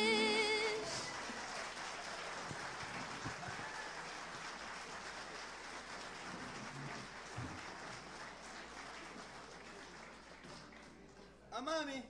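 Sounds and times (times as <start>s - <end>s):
audience applauding: 0.1s - 11.4s.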